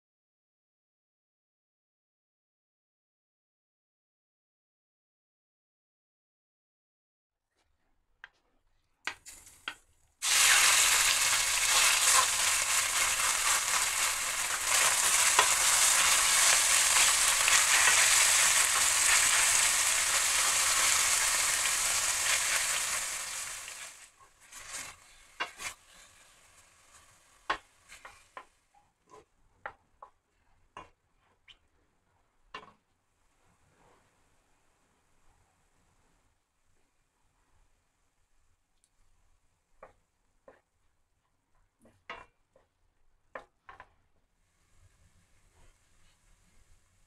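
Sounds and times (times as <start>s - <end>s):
meat sizzling in hot oil: 10.2s - 28.2s
wooden spoon tapping and scraping pan: 11.6s - 23.1s, 24.2s - 26.1s, 27.0s - 31.6s, 39.7s - 40.9s, 41.5s - 44.1s.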